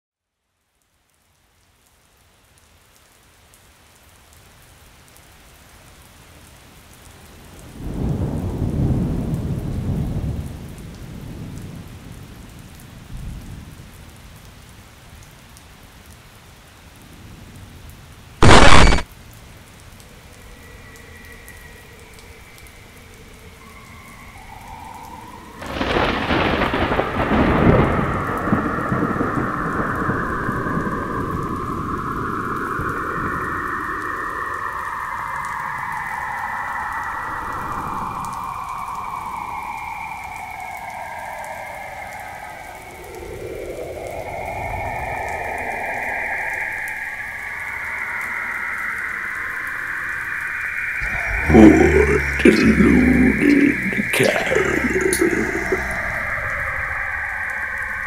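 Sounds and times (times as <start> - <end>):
steady rain: 0.3 - 58.0
sudden loud noise burst: 18.4 - 19.0, 50.8 - 58.0
thunder rolling: 25.6 - 33.5.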